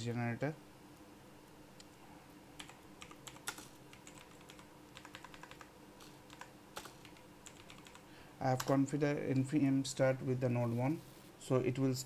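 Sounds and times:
faint steady hum: 0:00.0 - 0:12.0
computer keyboard keystrokes: 0:02.6 - 0:08.0, 0:08.6 - 0:08.8.

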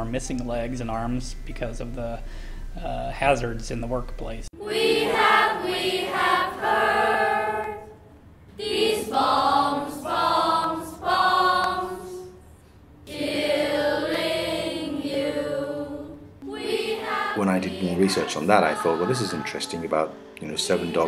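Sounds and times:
choir singing: 0:04.6 - 0:21.0.

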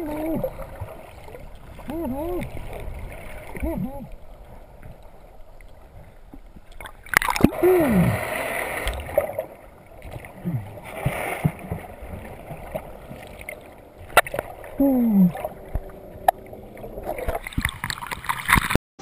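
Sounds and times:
bubbling water rush: 0:00.0 - 0:18.8
muffled underwater voice hooting: 0:01.8 - 0:02.6, 0:03.6 - 0:04.2, 0:14.8 - 0:17.4.

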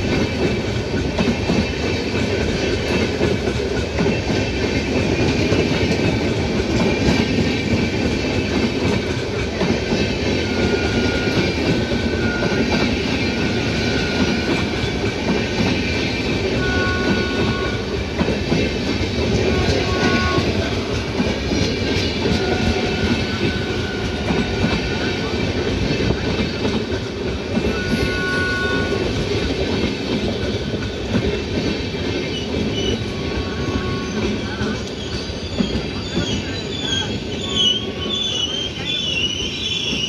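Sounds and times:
train wheels clattering over rail joints: 0:00.0 - 0:37.4.

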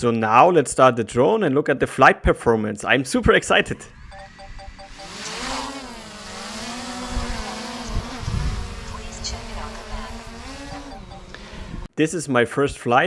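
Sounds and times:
drone propellers buzzing: 0:03.8 - 0:11.9.

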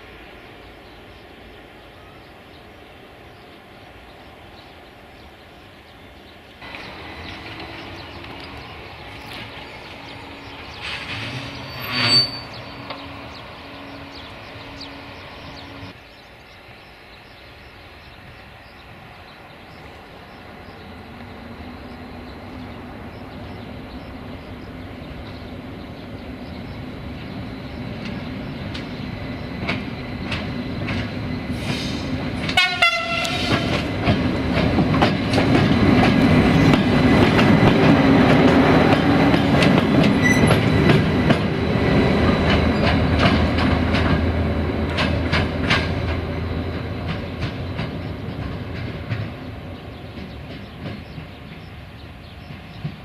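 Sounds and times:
electric locomotive hum: 0:00.0 - 0:53.0
wheels rumbling on rails: 0:00.0 - 0:53.0
train horn: 0:31.8 - 0:33.9.

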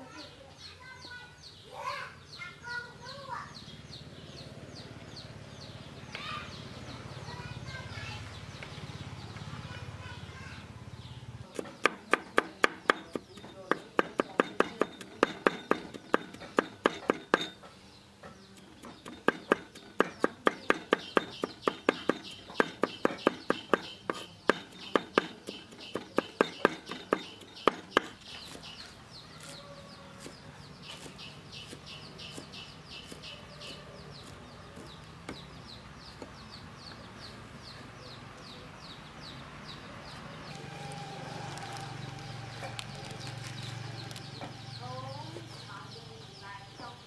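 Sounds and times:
bird chirping: 0:00.0 - 0:47.0
cleaver chopping on wooden board: 0:11.5 - 0:17.6, 0:18.6 - 0:29.6, 0:30.2 - 0:35.5.

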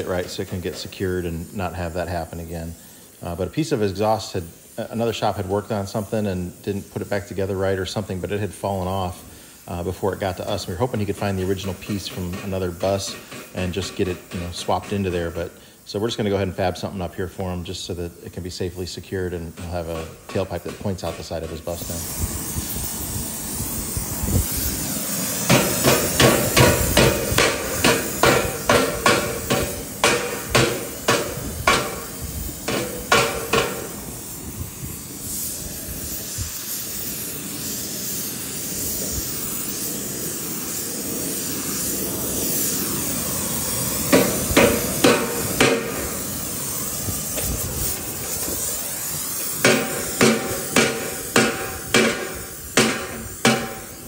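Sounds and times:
torch hissing: 0:00.0 - 0:54.0
hammer ringing on steel pipe: 0:49.7 - 0:54.0.

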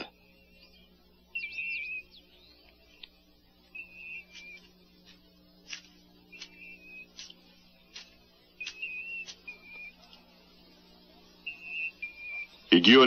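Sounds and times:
bird trilled call: 0:00.0 - 0:03.0, 0:03.7 - 0:04.8, 0:06.3 - 0:10.0, 0:11.4 - 0:13.0
downward-sweeping bird chirps: 0:00.0 - 0:05.0, 0:06.2 - 0:13.0
sharp clicks: 0:05.7 - 0:09.9.

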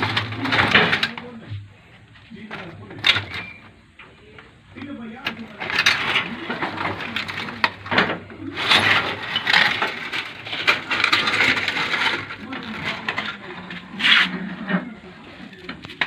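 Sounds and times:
rusty metal clinking and rattling: 0:00.0 - 0:04.6, 0:05.2 - 0:16.0.

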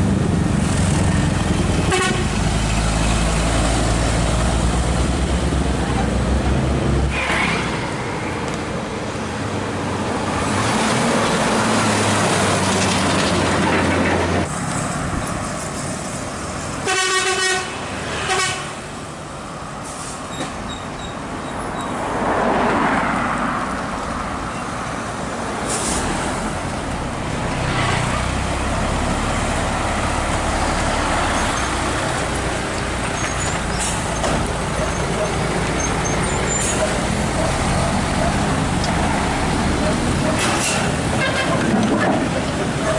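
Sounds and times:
truck driving past: 0:00.0 - 0:16.0
traffic noise: 0:00.0 - 0:42.9
horn tooting: 0:01.9 - 0:02.4, 0:16.8 - 0:18.8, 0:41.1 - 0:41.7.

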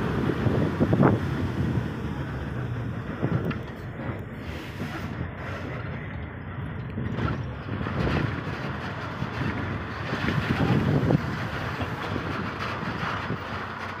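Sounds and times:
vehicle road noise rumble: 0:00.0 - 0:14.0
wind buffeting microphone: 0:00.0 - 0:14.0.

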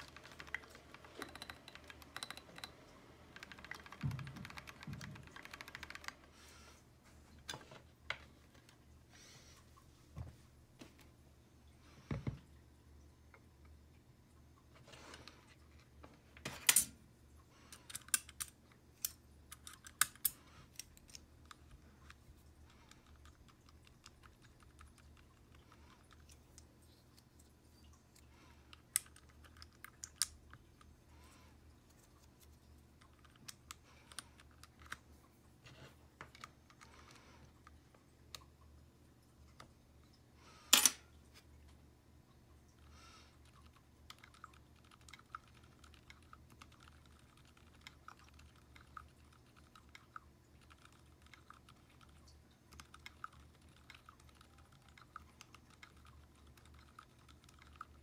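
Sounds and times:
mechanical keyboard clicks and clacks: 0:00.0 - 0:06.3, 0:44.1 - 0:52.1.

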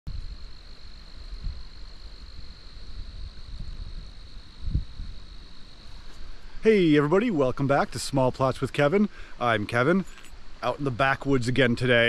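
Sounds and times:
wind buffeting microphone: 0:00.1 - 0:06.4
insect trill: 0:00.1 - 0:12.0.

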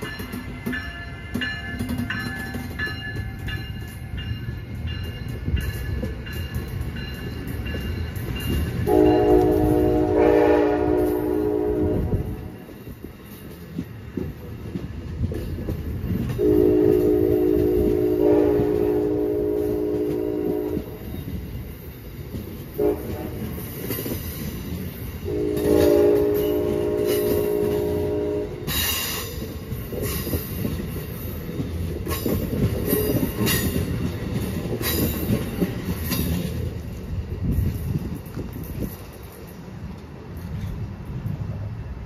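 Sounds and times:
wheels clicking over rail joints: 0:00.0 - 0:10.0, 0:12.4 - 0:41.5
train coaches rumbling past: 0:00.0 - 0:42.0
train air horn chord: 0:08.9 - 0:12.6, 0:16.4 - 0:21.0, 0:22.8 - 0:23.5, 0:25.3 - 0:28.6.

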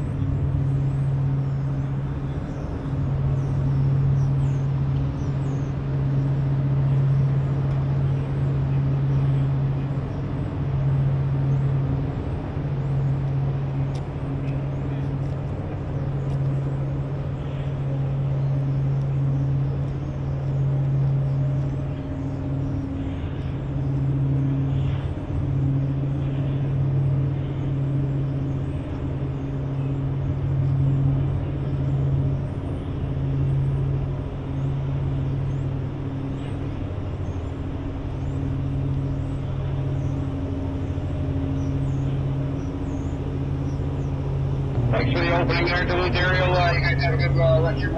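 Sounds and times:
ship diesel engines humming: 0:36.9 - 0:47.9.

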